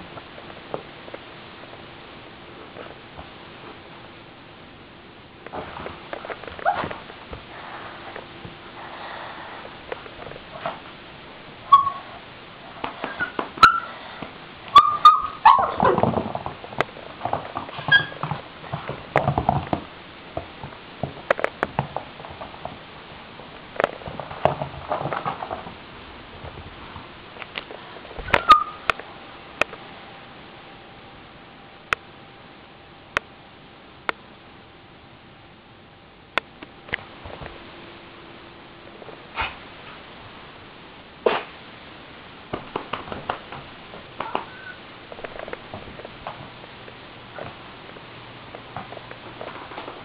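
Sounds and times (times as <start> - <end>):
small dog whimpering: 13.0 - 14.0, 44.2 - 44.8.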